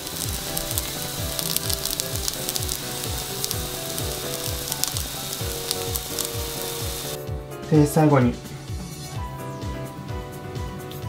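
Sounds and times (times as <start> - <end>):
vegetables sizzling in a frying pan: 0.0 - 7.2
background music with steady beat: 0.0 - 11.0.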